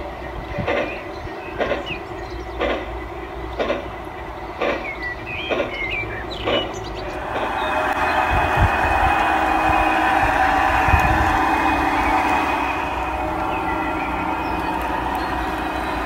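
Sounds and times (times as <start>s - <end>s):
model steam locomotive running: 0.0s - 16.0s
birds chirping: 0.4s - 10.6s, 11.2s - 16.0s
model diesel engine drone: 6.1s - 16.0s.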